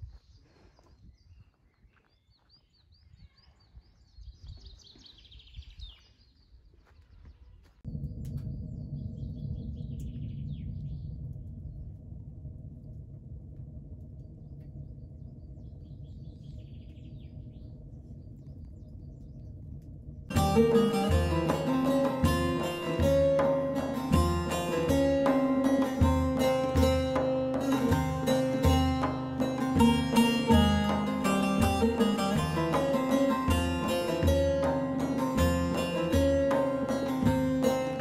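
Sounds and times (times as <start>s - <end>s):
small birds chirping: 0.0s - 11.9s, 14.2s - 22.0s
steady low rumble: 7.6s - 38.0s.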